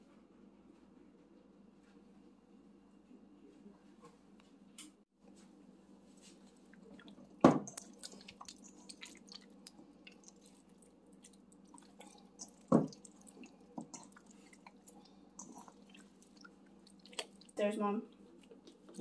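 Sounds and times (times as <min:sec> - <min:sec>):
hand squelching chicken in marinade: 0:06.3 - 0:17.6.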